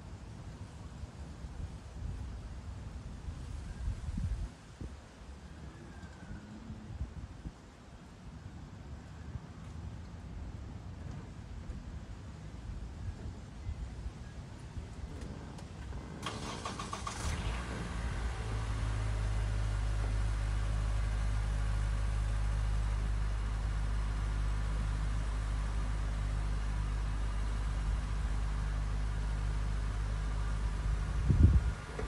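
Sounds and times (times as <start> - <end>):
engine idling: 14.5 - 32.0.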